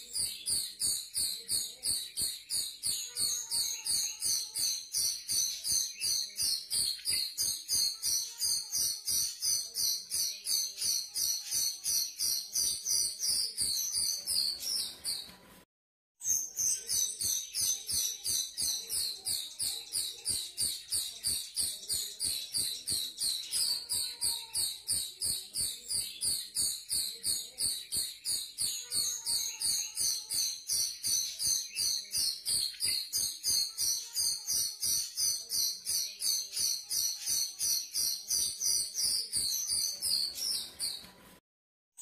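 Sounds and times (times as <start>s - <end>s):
bird chirping: 0.0s - 15.6s, 16.2s - 41.4s.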